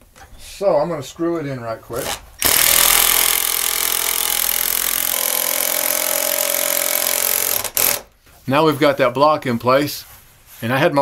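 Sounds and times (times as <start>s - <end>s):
cordless drill driving screw: 2.0s - 8.1s.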